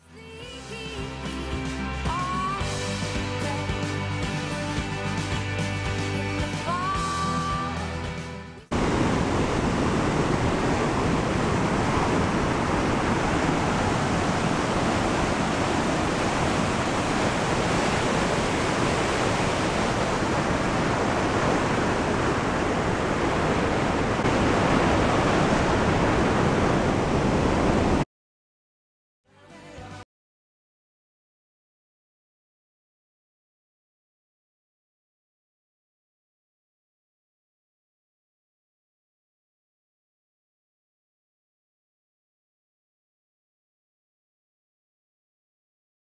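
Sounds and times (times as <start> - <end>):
whitewater rushing: 8.7 - 28.0.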